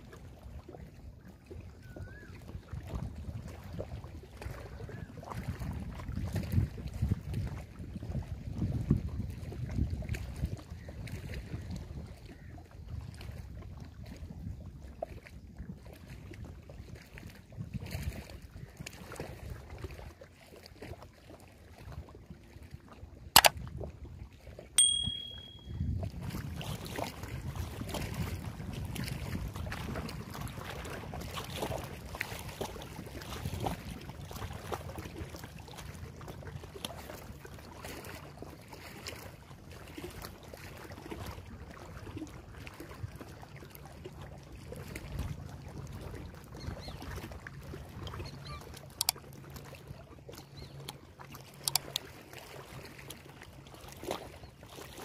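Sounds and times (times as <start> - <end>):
waves lapping against rocks: 0.0 - 24.8, 25.8 - 55.0
wind on microphone: 0.8 - 19.9, 24.8 - 37.4
brief high ding: 24.8 - 25.8.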